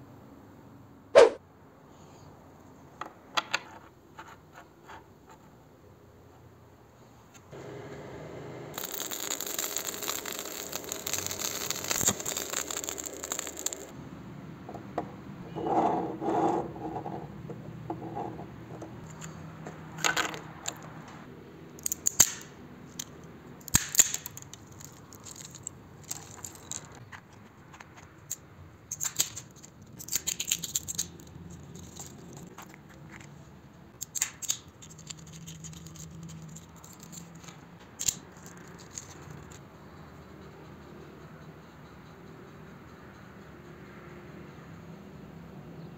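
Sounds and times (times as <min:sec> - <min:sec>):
arc welding crackling and hissing: 0:07.6 - 0:14.0
walnut shells cracking: 0:08.8 - 0:14.0, 0:21.8 - 0:32.8, 0:34.0 - 0:39.6.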